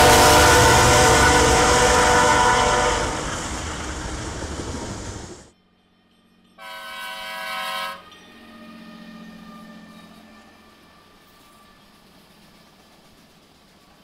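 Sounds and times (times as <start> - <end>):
locomotive horn chord: 0.0 - 3.8, 6.6 - 10.9
locomotive low hum: 0.0 - 6.6
train wheels on rails: 0.0 - 14.0.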